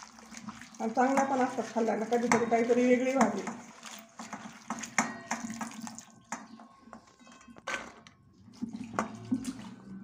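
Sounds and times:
water splashing in a metal bowl: 0:00.0 - 0:07.1, 0:08.2 - 0:10.0.

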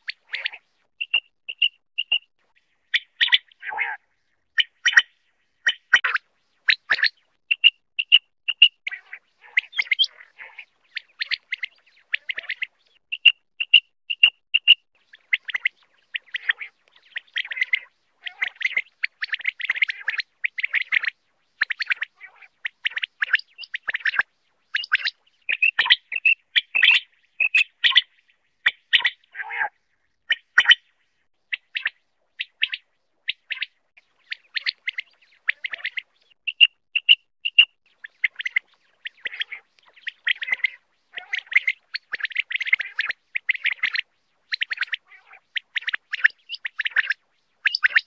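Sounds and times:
quail calling: 0:00.0 - 0:02.3, 0:02.9 - 0:30.8, 0:31.5 - 0:48.0.

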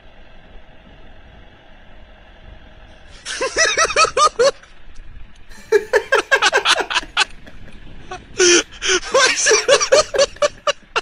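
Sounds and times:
faint vehicle engine: 0:00.0 - 0:11.0
person laughing loudly: 0:03.3 - 0:04.6, 0:05.5 - 0:11.0.

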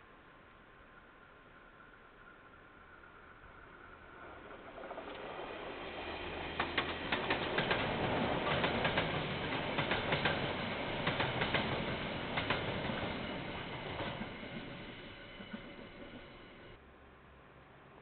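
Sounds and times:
train rolling noise: 0:02.7 - 0:16.8
train wheels clicking over rail joints: 0:04.2 - 0:16.8.

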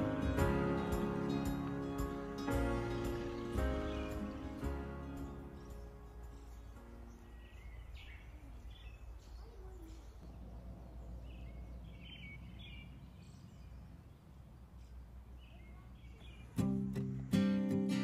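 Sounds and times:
faint bird chirps: 0:05.2 - 0:17.6.

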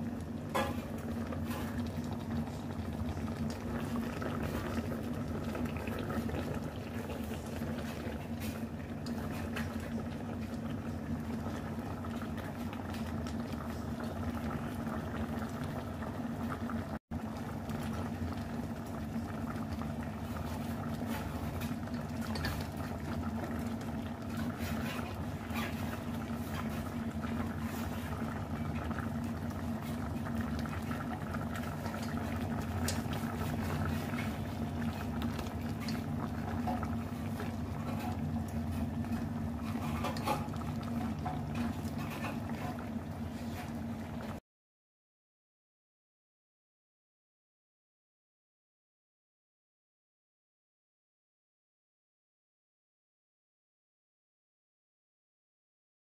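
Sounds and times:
broth bubbling: 0:00.0 - 0:44.4.

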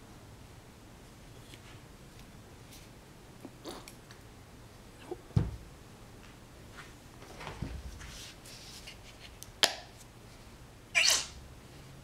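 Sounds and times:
soft rustle: 0:06.2 - 0:09.4.

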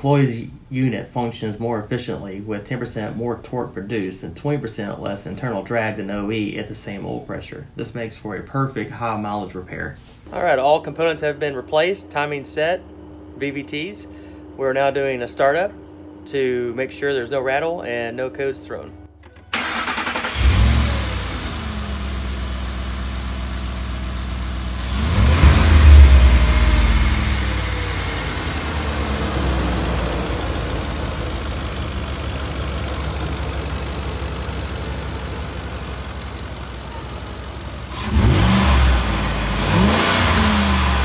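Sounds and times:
engine starting and idling: 0:19.2 - 0:41.0
engine revving: 0:19.6 - 0:41.0.

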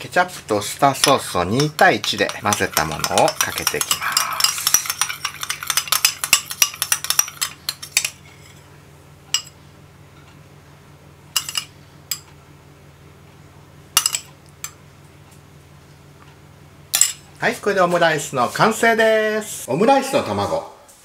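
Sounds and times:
metal spoon stirring sauce: 0:01.0 - 0:08.2
spoon clinking against ceramic bowl: 0:01.0 - 0:08.2.

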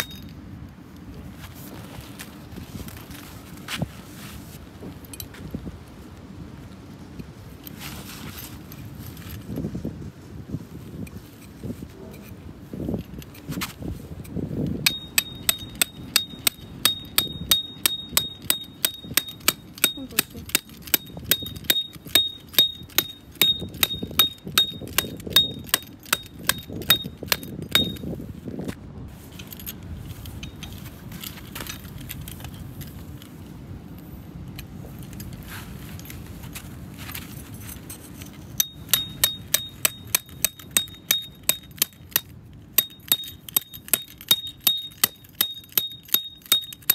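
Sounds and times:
hammer striking metal tent peg: 0:00.0 - 0:00.3, 0:14.8 - 0:28.1, 0:38.5 - 0:46.9.

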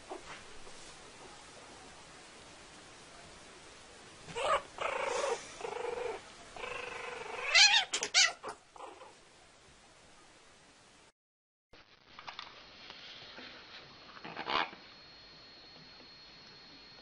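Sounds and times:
kitten and puppy crying: 0:04.3 - 0:05.9, 0:07.1 - 0:09.1.

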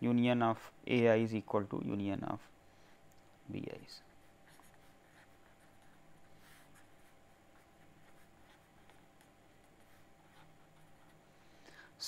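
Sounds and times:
low steady hum: 0:00.0 - 0:12.0
pen scratching on paper: 0:04.1 - 0:11.3.

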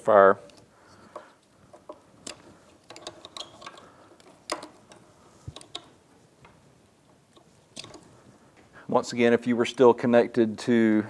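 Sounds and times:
plastic connectors clicking: 0:00.5 - 0:06.6, 0:07.3 - 0:08.1.

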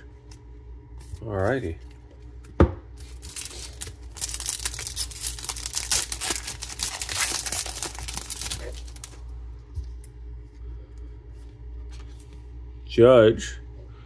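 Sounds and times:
foil wrapper tearing and crinkling: 0:03.0 - 0:09.2.

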